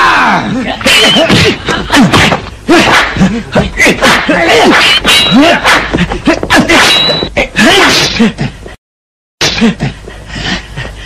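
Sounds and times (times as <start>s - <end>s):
punch and kick whacks: 1.2s - 3.3s.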